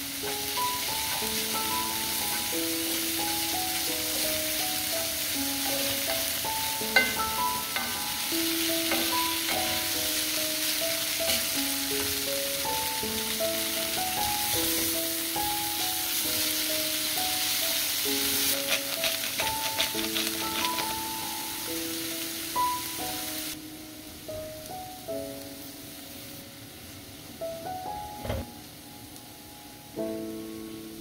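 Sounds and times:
piano music: 0.0s - 31.0s
tofu and vegetables sizzling: 0.0s - 31.0s
wooden spatula stirring: 18.6s - 20.9s.

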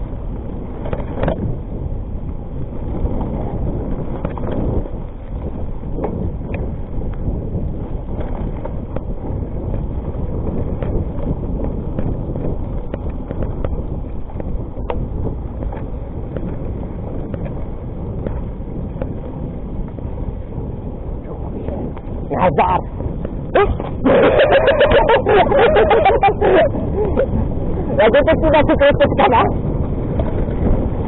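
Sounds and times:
bike clicks and rattles: 0.0s - 21.2s, 29.5s - 31.0s
tyres rolling over dirt: 0.0s - 31.0s
wind buffeting microphone: 0.0s - 31.0s.

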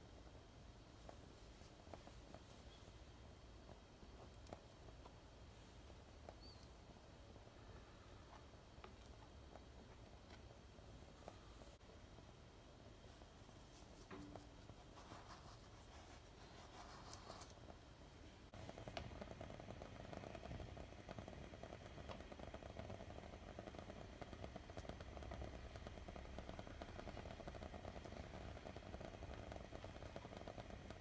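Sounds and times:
sugar pouring rustle: 13.2s - 17.7s.

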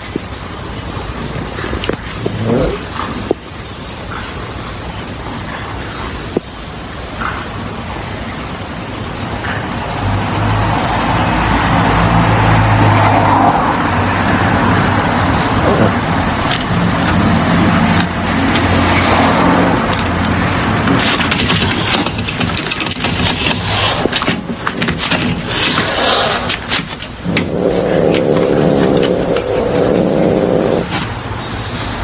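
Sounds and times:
road noise: 0.0s - 32.0s
vehicle engine running: 27.1s - 31.8s.

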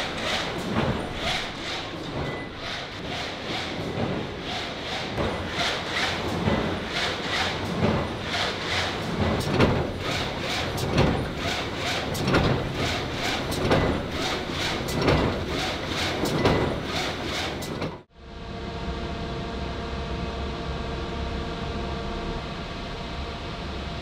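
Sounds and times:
steady machine hum: 0.0s - 17.3s
machinery rhythmic swish: 0.0s - 18.0s.

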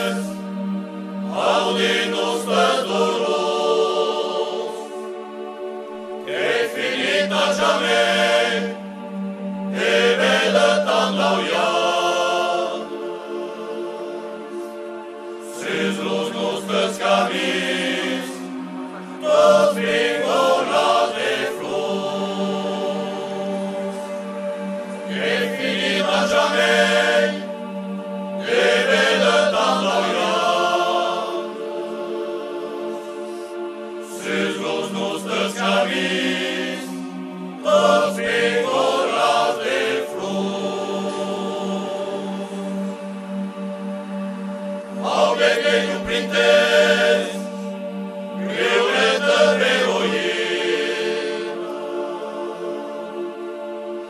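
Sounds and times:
voices singing together: 0.0s - 54.0s.

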